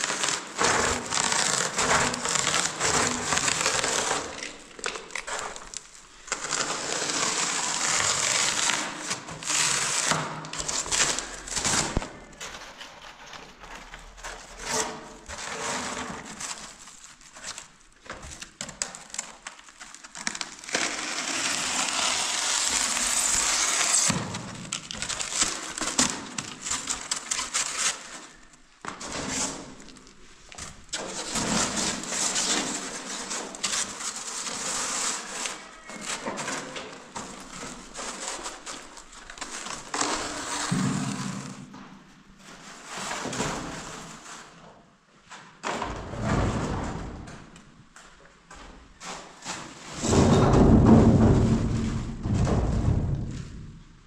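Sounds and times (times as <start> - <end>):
foam board being cut: 0.0 - 4.4, 6.4 - 12.0, 20.6 - 24.5, 39.9 - 41.6.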